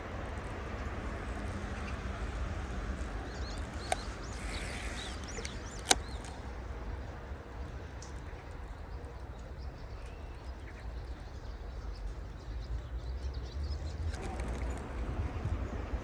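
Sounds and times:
small birds chirping: 0:00.0 - 0:15.8
sharp clicks: 0:00.1 - 0:11.2, 0:14.0 - 0:15.2.

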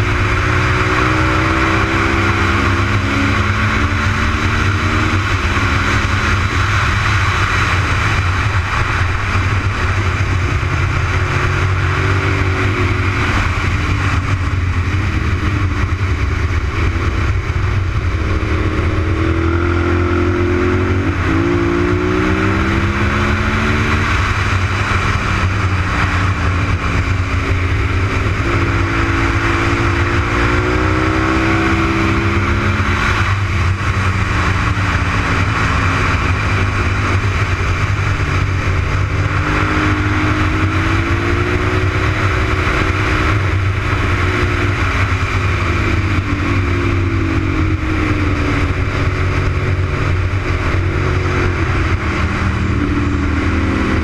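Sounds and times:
motorcycle engine revving: 0:00.0 - 0:54.0
wind rumble on microphone: 0:00.0 - 0:54.0.

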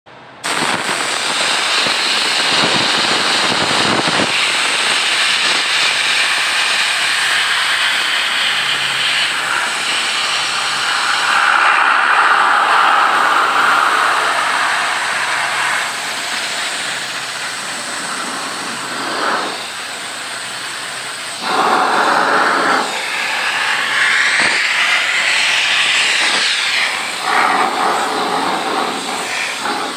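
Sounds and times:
paint spray gun hissing: 0:00.4 - 0:29.9.

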